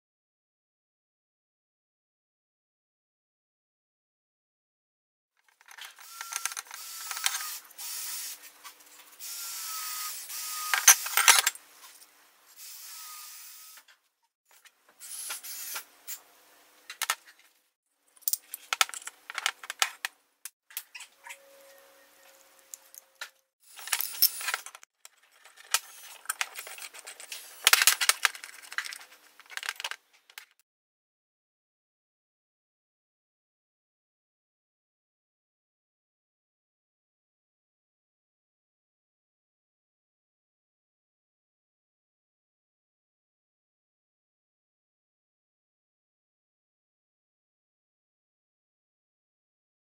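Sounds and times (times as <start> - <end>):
small parts clicking and clinking: 5.4 - 7.6, 18.1 - 20.1, 22.4 - 30.6.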